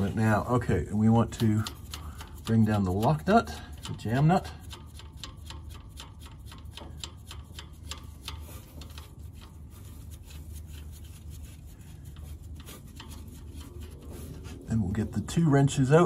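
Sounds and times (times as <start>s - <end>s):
nut spinning on threaded rod: 1.0s - 15.2s
low hum: 8.0s - 16.0s.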